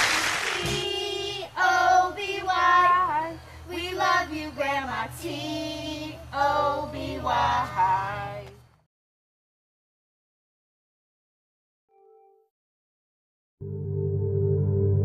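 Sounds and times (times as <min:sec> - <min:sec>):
children singing unaccompanied: 0:00.0 - 0:08.5.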